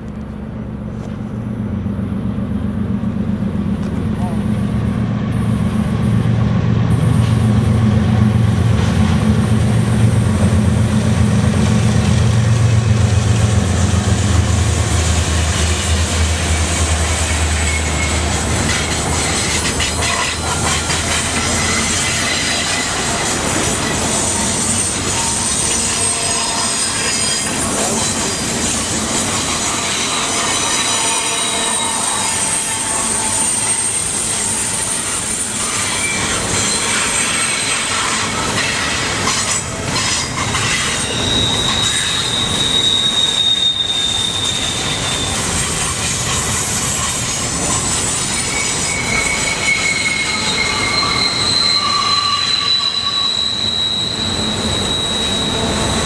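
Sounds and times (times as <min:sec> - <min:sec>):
diesel locomotive engine drone: 0:00.0 - 0:56.0
train wheel and rail noise: 0:00.0 - 0:56.0
high-pitched wheel squeal: 0:15.3 - 0:56.0.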